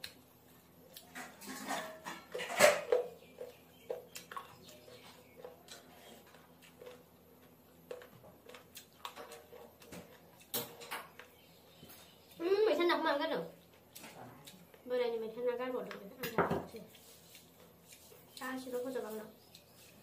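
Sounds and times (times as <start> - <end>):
chewing smacks and clicks: 3.1 - 11.4, 19.4 - 20.0.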